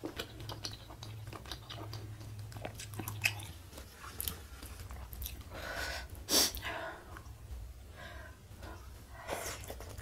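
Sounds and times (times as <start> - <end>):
wet mouth clicks and smacks: 0.0 - 3.6
chewing noodle soup: 0.0 - 5.5.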